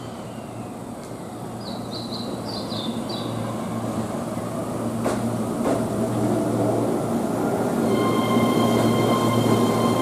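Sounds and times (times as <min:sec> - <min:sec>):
electric train running: 0:07.4 - 0:10.0.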